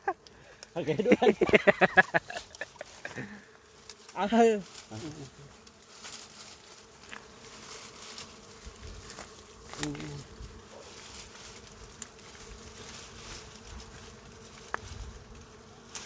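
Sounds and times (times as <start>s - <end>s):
honeybees buzzing: 0.0s - 16.0s
branches snapping and rustling: 3.8s - 16.0s.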